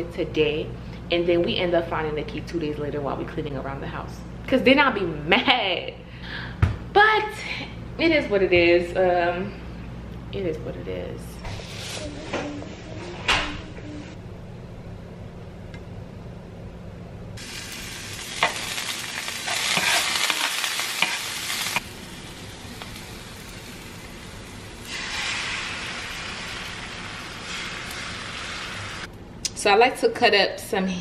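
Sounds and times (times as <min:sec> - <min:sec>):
frying pan sizzling: 0:17.4 - 0:29.1.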